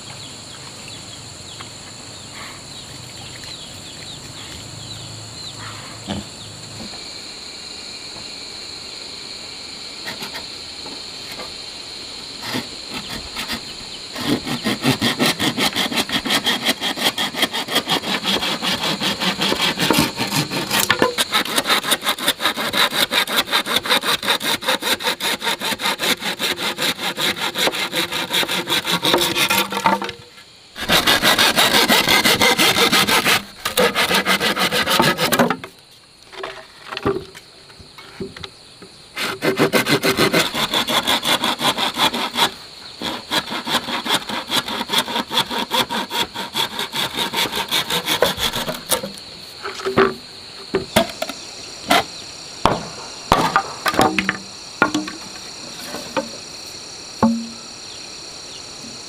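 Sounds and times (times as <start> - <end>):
hand saw cutting bamboo: 10.0 - 10.5, 12.4 - 35.7, 39.2 - 51.3, 52.7 - 56.4, 57.2 - 57.6.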